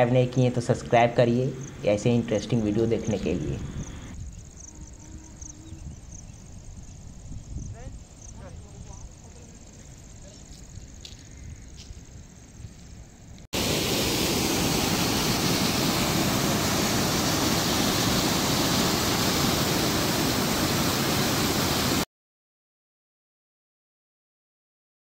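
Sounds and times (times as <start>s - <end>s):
waterfall rushing: 13.6s - 22.0s.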